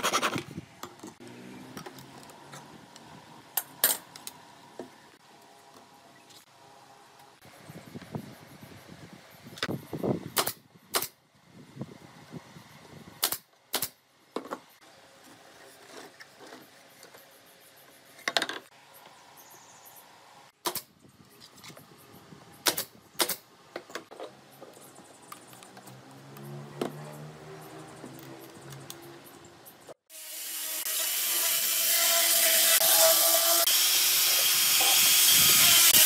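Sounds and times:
nail gun firing: 10.4s - 11.2s, 13.2s - 14.0s, 20.6s - 20.9s, 22.6s - 23.4s.

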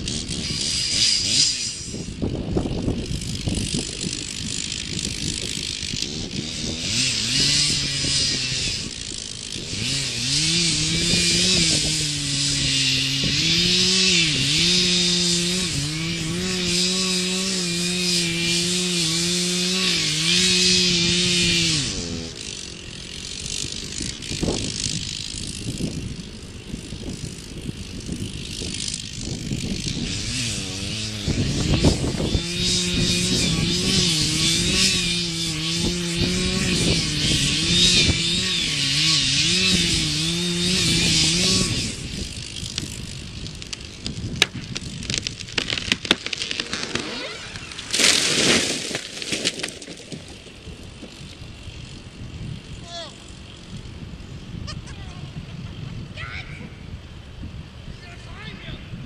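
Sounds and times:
chainsaw cutting wood: 0.0s - 56.1s.

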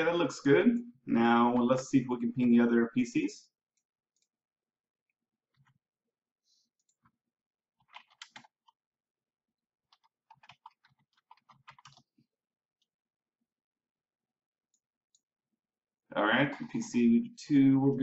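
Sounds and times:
keyboard typing: 7.8s - 8.8s, 9.9s - 12.2s.

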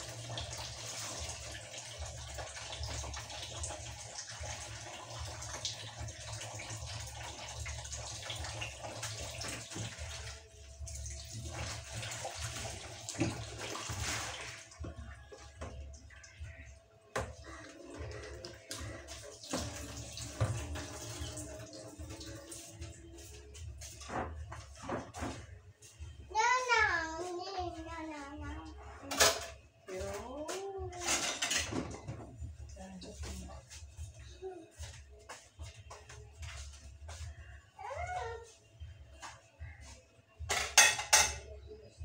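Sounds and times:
tap water splashing into basin: 0.0s - 25.4s
dishes knocking: 40.5s - 41.5s.

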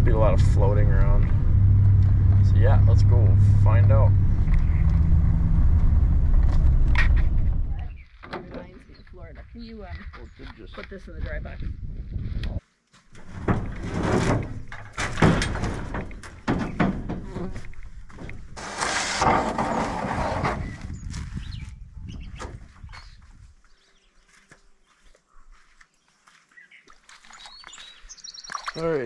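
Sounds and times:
metal canoe scraping on wood: 13.2s - 20.9s.

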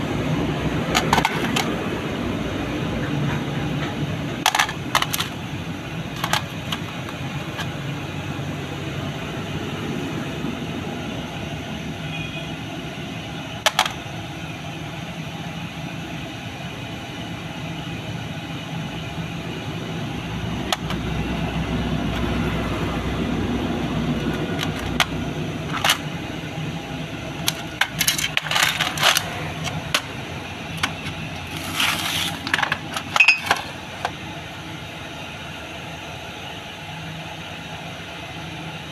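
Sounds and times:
low mechanical rumble: 0.0s - 38.9s
metal parts clinking on a tray: 4.4s - 5.4s, 6.2s - 6.8s, 27.4s - 30.1s, 30.8s - 34.1s.

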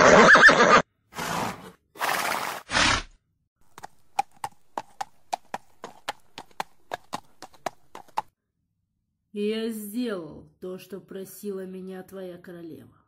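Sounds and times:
horse whinnying: 0.0s - 3.1s
horse blowing breathily: 1.1s - 3.1s
hooves on hard ground: 3.6s - 8.3s.

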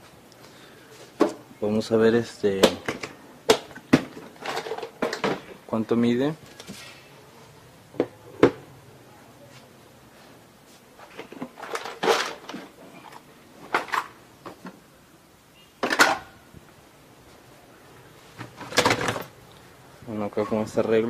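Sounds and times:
rustling clatter: 4.1s - 5.4s, 11.0s - 14.6s.

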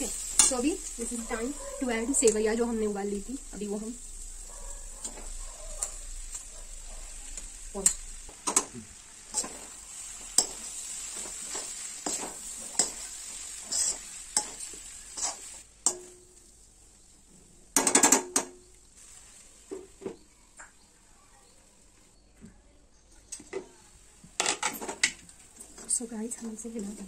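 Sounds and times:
food sizzling in oil: 0.0s - 22.1s, 23.8s - 27.0s
metal spatula scraping pan: 9.3s - 16.1s.

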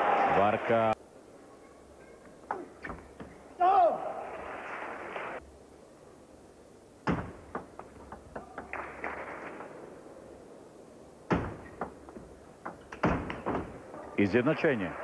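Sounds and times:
table tennis ball knocking: 7.1s - 9.1s.

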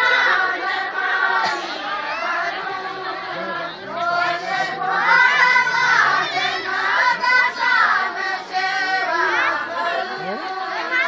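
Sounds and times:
group of women singing folk song: 0.0s - 11.0s.

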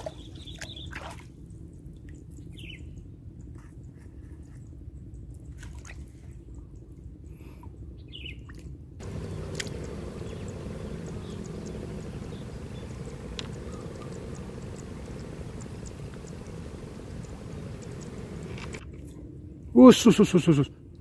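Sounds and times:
faint hum: 9.0s - 18.8s
low outdoor rumble: 9.0s - 18.8s
small ticks: 9.0s - 18.8s.

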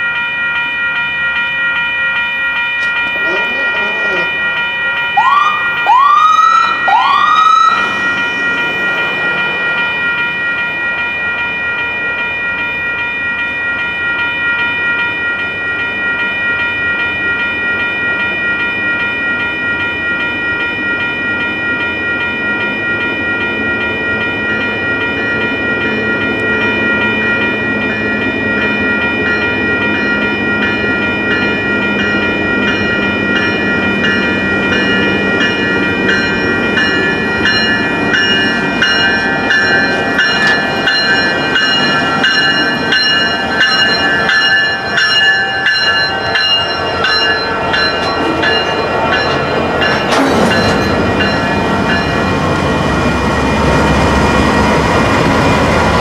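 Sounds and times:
steady high ringing tones: 0.0s - 55.9s
freight locomotive rumbling: 0.0s - 56.0s
rising siren whoops: 5.1s - 9.4s.

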